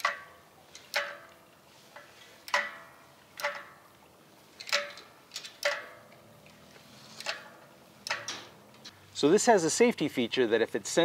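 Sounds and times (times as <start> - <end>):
sharp metallic clicks: 2.4 - 3.8, 4.6 - 6.6.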